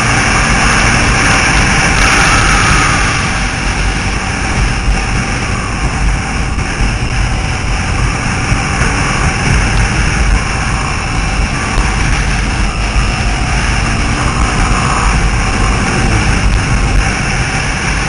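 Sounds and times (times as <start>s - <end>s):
motor scooter engine drone: 0.0s - 18.0s
wind rushing over microphone: 0.0s - 18.0s.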